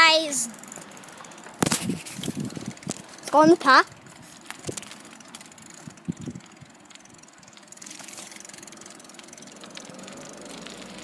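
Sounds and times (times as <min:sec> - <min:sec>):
car engine approaching: 0:03.9 - 0:11.0.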